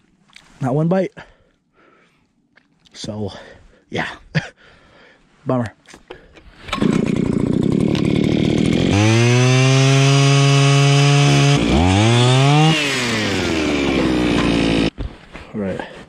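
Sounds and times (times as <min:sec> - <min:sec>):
ice auger engine running: 0:06.7 - 0:14.9.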